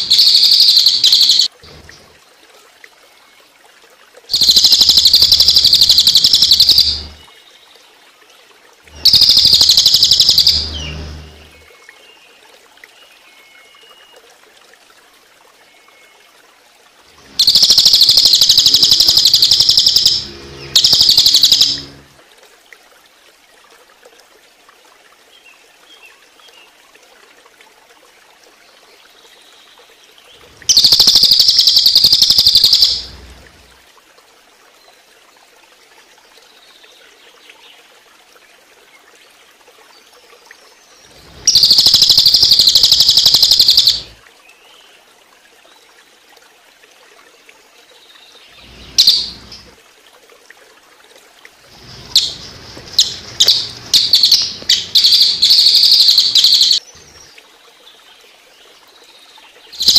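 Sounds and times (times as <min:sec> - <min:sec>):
jay rattling call: 0:00.0 - 0:01.5, 0:04.3 - 0:07.2, 0:09.0 - 0:11.5, 0:17.4 - 0:22.0, 0:30.7 - 0:33.1, 0:41.5 - 0:44.2, 0:48.9 - 0:49.6, 0:52.0 - 0:56.8
water trickling: 0:00.0 - 0:59.9.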